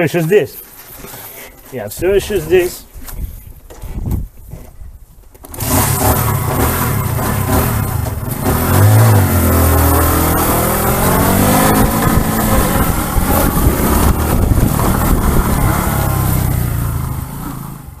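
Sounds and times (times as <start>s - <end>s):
motorcycle engine revving: 5.4s - 18.0s.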